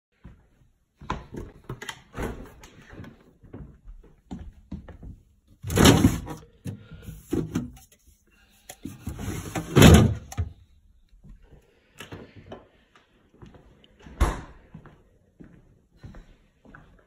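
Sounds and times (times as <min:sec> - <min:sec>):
refrigerator door opening: 0:05.6 - 0:06.4, 0:09.1 - 0:10.6
plastic fridge drawer sliding: 0:05.6 - 0:06.5, 0:08.9 - 0:10.5.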